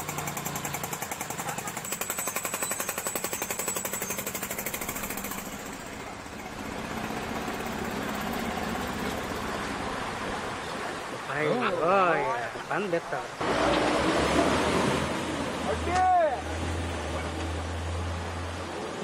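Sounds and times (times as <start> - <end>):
motorcycle engine running: 0.0 - 9.0
floodwater rushing: 0.0 - 19.0.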